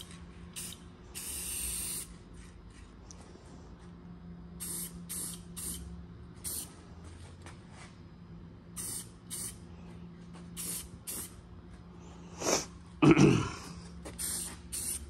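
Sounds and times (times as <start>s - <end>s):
steady low hum: 0.0s - 15.0s
spray can hissing: 0.6s - 2.1s, 4.6s - 6.7s, 8.8s - 9.6s, 10.6s - 11.4s, 14.1s - 15.0s.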